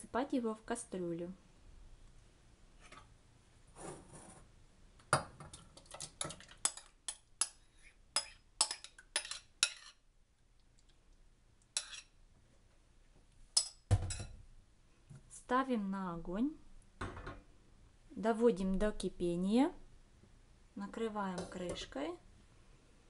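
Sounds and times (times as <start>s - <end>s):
metal spoon clinking on bowl: 8.2s - 10.0s.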